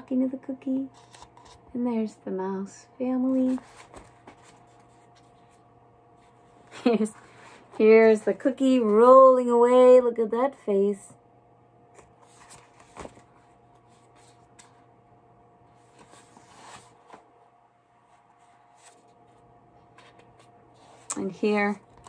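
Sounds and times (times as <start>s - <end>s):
faint steady hum: 0.0s - 22.0s
book pages turning: 0.9s - 1.6s, 3.3s - 5.6s, 11.9s - 14.9s, 15.7s - 17.3s, 18.0s - 21.1s.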